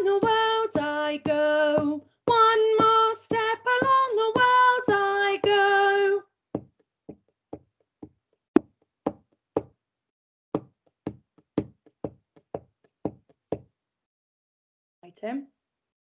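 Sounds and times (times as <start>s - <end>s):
sharp knocks keeping a beat: 0.0s - 5.8s, 6.6s - 9.7s, 10.6s - 13.7s.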